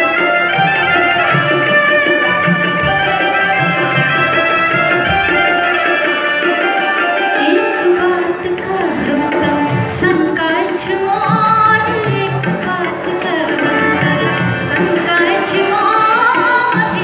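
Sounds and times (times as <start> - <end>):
keyboard melody: 0.0 - 17.0
tabla and dholak rhythm: 0.0 - 17.0
woman singing: 7.3 - 17.0.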